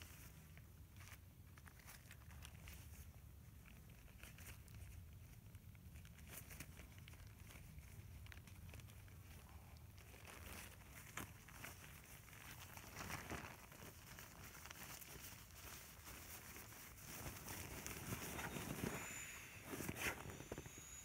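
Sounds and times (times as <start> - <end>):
fabric rustling and crinkling: 0.0 - 21.0.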